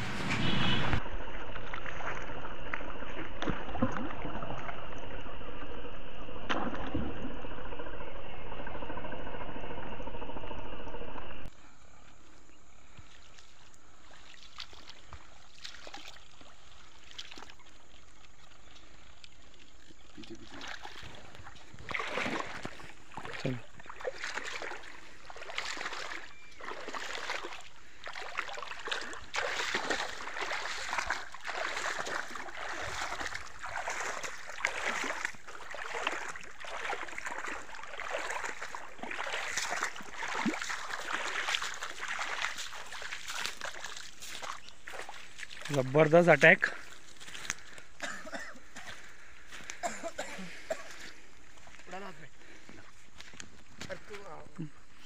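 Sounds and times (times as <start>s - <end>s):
loud steady rushing noise: 0.0s - 1.0s
fish splashing in water: 13.1s - 46.0s.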